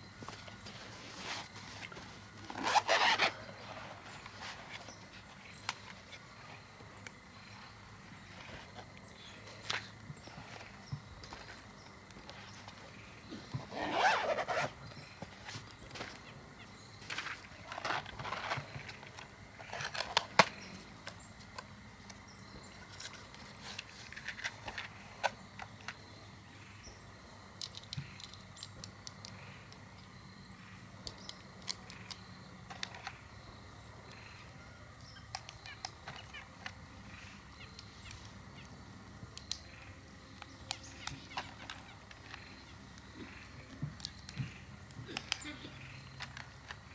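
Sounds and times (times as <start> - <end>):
clicks and rustles of gear handled: 0.2 - 6.2, 13.6 - 16.3, 17.0 - 21.7, 22.8 - 26.0.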